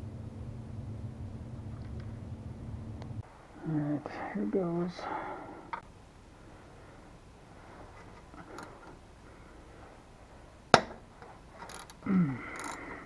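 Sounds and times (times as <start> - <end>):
socket wrench ticking: 11.7 - 12.8.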